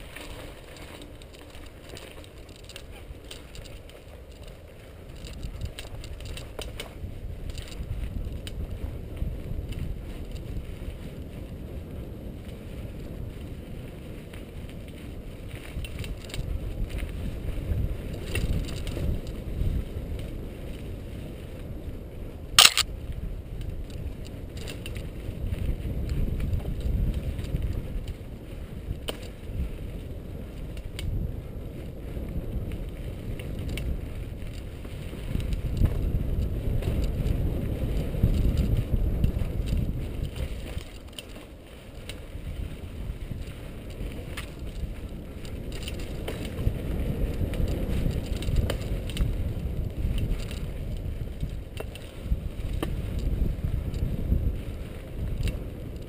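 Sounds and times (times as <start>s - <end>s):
bike rattling: 0.0s - 56.0s
bike tyres rumbling on dirt: 0.0s - 56.0s.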